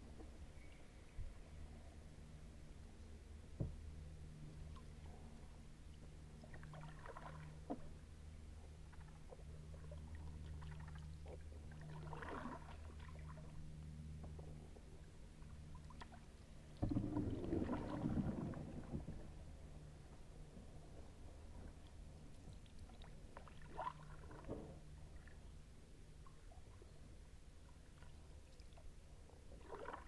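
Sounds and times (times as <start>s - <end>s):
faint low hum: 0.0s - 30.0s
paddle splashing in water: 6.5s - 7.9s, 10.6s - 13.4s, 16.8s - 19.2s, 29.6s - 30.0s.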